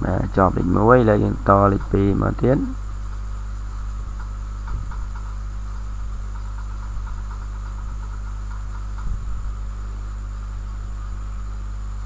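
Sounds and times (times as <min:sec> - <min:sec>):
electrical mains hum with hiss: 0:00.0 - 0:12.0
faint rapid insect-like chirping: 0:00.0 - 0:12.0
soft low thumps: 0:04.0 - 0:09.7.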